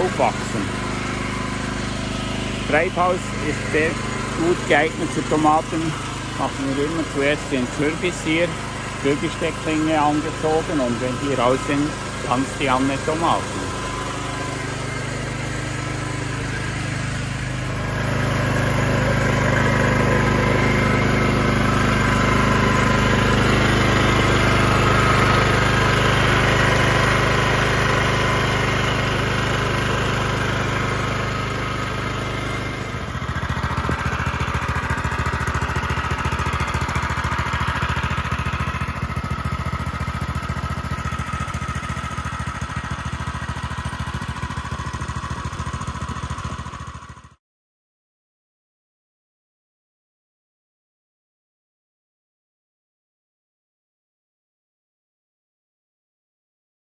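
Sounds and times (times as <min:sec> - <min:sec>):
tiller petrol engine running: 0:00.0 - 0:47.4.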